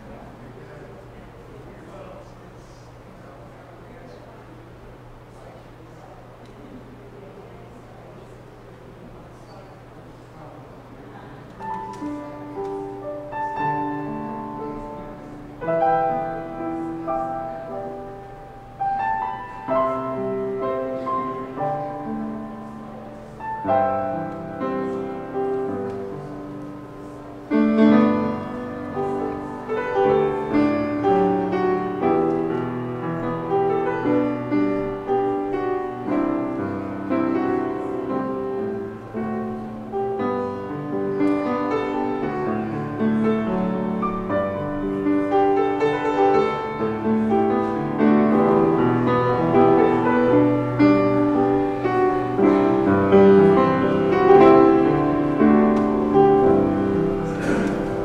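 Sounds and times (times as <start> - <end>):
piano chords and melody: 11.6 - 58.0.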